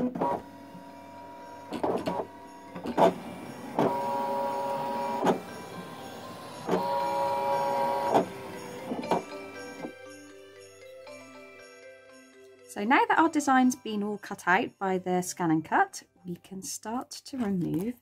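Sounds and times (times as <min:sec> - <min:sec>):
cutting machine motors whining: 0:00.0 - 0:10.1.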